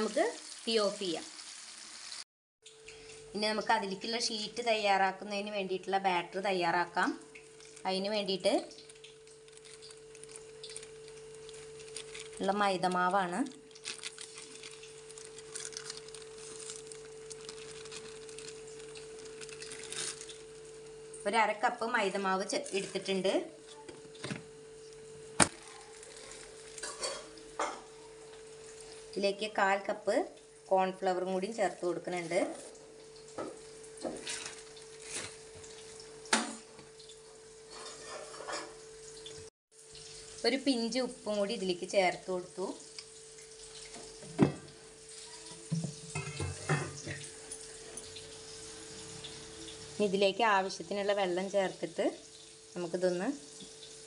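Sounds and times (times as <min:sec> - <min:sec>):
steady hum: 0:02.9 - 0:36.8
kitchenware knocking and clinking: 0:45.7 - 0:47.2.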